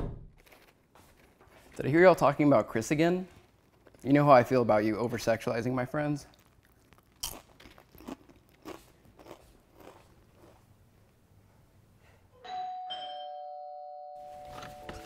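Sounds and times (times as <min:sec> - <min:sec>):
two-note doorbell chime: 0:12.4 - 0:15.0.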